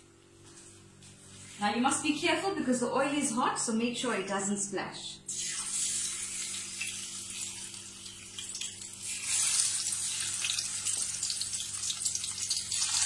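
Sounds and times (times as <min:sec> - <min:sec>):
fish frying in hot oil: 0:05.3 - 0:13.0.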